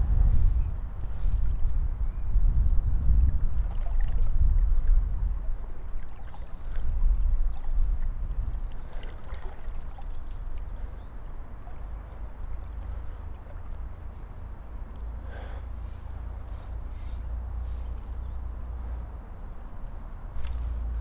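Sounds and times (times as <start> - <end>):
low rumble: 0.0 - 3.3
river water lapping around legs: 2.6 - 21.0.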